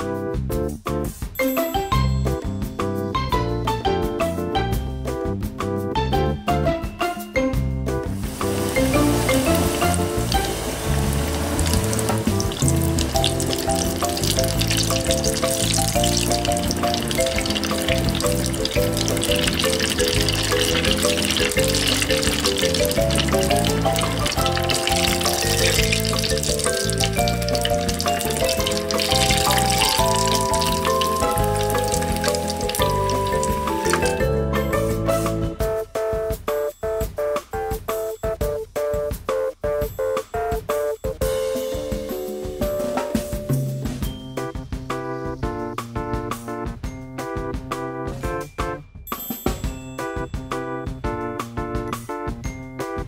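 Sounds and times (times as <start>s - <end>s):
background music with bass: 0.0s - 36.4s
croquettes deep-frying in oil: 8.2s - 34.2s.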